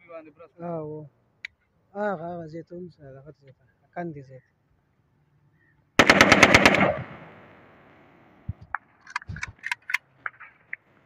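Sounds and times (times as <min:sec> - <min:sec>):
rifle automatic burst: 0:06.0 - 0:07.8
gunshot echo: 0:06.0 - 0:07.9.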